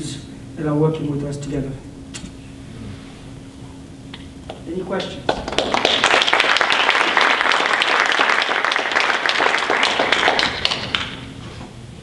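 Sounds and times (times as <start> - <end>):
audience applauding: 5.3 - 11.2.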